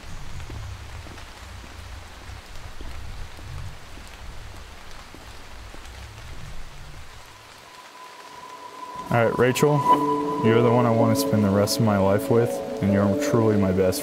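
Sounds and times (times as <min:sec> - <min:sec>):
rain on an umbrella: 0:00.0 - 0:09.7
low rumble: 0:05.9 - 0:13.2.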